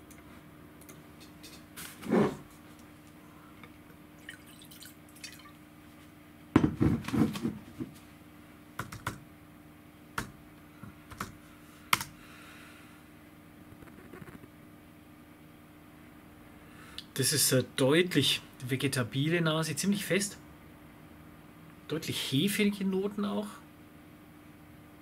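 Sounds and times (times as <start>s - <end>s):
wine pouring into glass: 4.2s - 5.6s.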